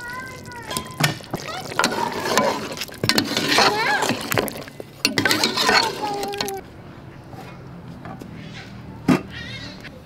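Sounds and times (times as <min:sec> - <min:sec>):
metal ladle scraping pot: 0:00.6 - 0:06.6
metal pot ringing: 0:00.7 - 0:04.3.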